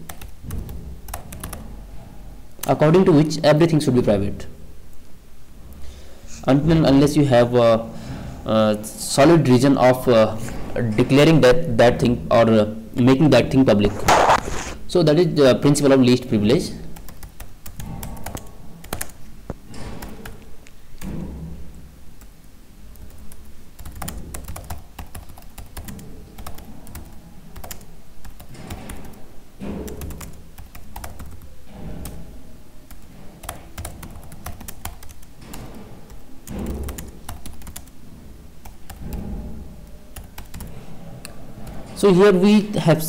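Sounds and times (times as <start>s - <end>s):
keyboard typing clicks: 0.0s - 1.6s, 17.0s - 19.2s, 22.9s - 29.2s, 29.9s - 32.2s, 32.9s - 37.9s, 40.2s - 40.7s.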